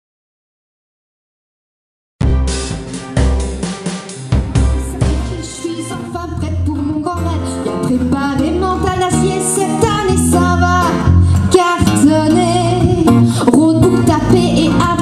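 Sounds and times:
band with guitar and bass: 2.2s - 15.0s
woman singing into a microphone: 4.8s - 15.0s.

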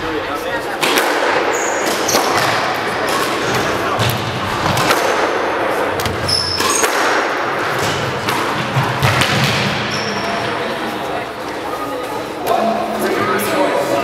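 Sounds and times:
squash ball smacking: 0.8s - 9.9s.

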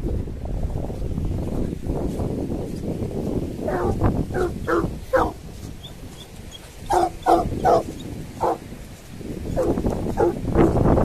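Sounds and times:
wind rumble on microphone: 0.0s - 11.0s
dogs barking: 3.7s - 5.4s, 6.5s - 8.6s, 9.6s - 10.8s.

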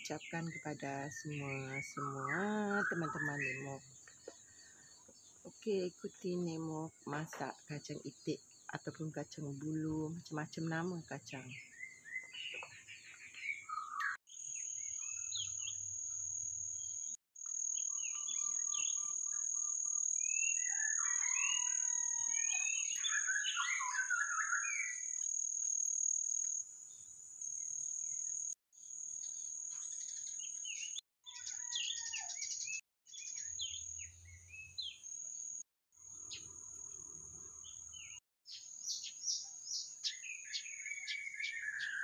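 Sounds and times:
birds chirping and calling: 0.0s - 4.6s, 11.4s - 14.2s, 20.3s - 25.2s, 30.0s - 35.1s, 37.6s - 42.0s.

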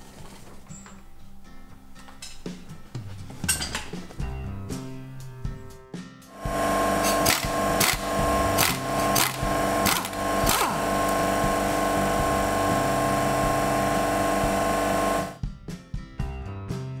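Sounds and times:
power tool motor running: 6.3s - 15.4s.

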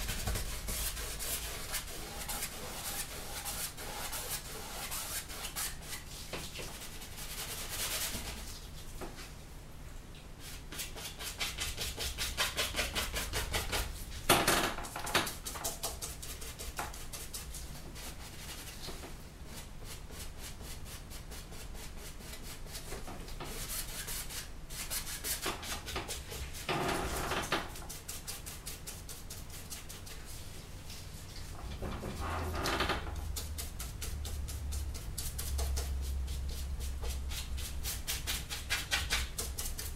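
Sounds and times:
paintbrush scrubbing canvas: 0.0s - 8.7s, 15.3s - 31.5s, 33.1s - 39.9s.

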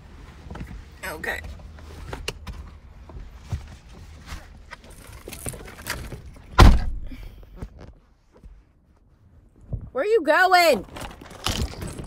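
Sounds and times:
person shifting in car seat: 0.2s - 6.6s
heavy thump: 6.6s - 7.1s.

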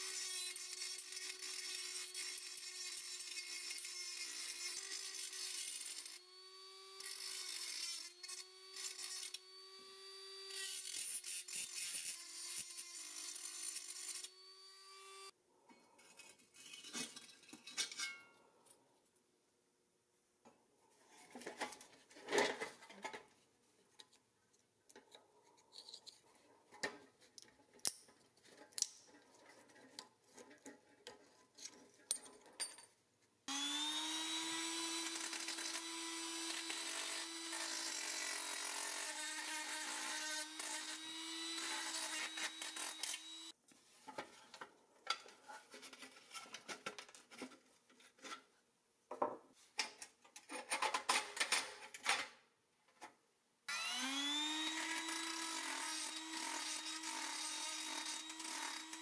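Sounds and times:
cordless drill whining: 33.5s - 43.5s, 53.7s - 59.0s.

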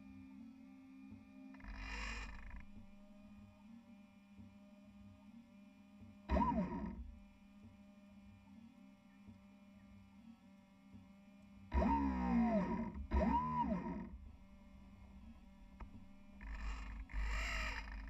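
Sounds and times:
motor whirring bursts: 1.6s - 3.2s, 6.3s - 7.3s, 11.7s - 18.0s
electric motor hum: 1.6s - 3.3s, 6.3s - 7.3s, 11.7s - 18.0s.

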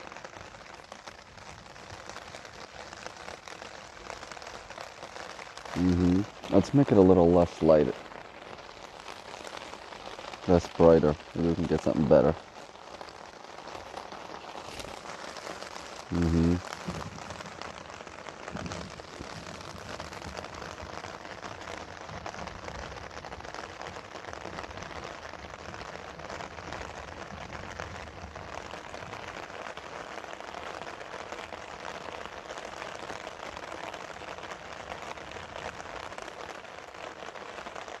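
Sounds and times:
steady rain falling: 0.0s - 38.0s.

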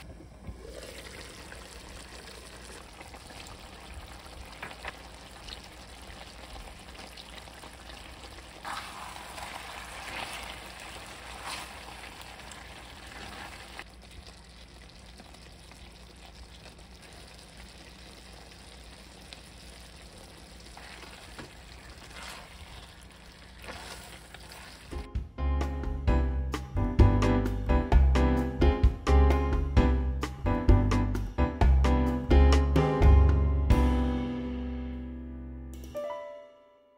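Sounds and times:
meat sizzling in a wok: 6.2s - 13.8s.

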